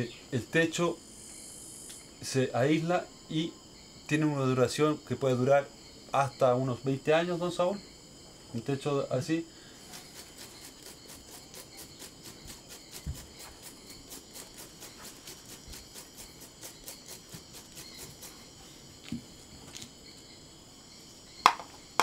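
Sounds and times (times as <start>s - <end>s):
rainforest insects droning: 0.0s - 22.0s
fast scratchy insect pulse: 0.4s - 4.0s, 9.0s - 22.0s.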